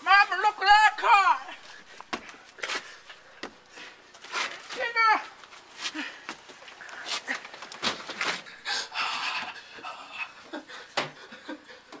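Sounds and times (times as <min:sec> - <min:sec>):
person panting heavily: 0:08.3 - 0:12.0.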